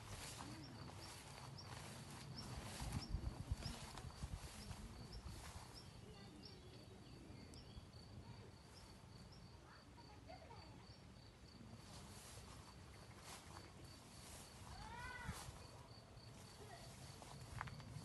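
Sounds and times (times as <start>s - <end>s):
footsteps through grass: 0.0s - 6.5s, 11.8s - 18.0s
cricket chirping: 0.0s - 18.0s.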